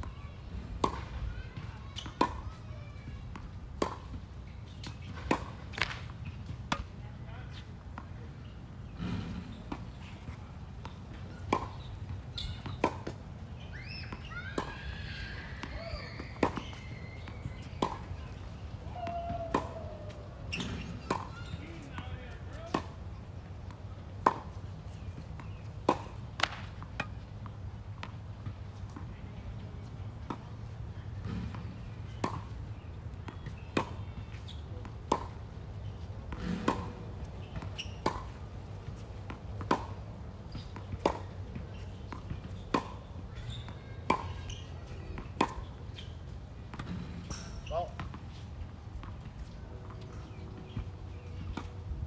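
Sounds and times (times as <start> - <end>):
tennis balls struck with racquets: 0.7 - 52.0.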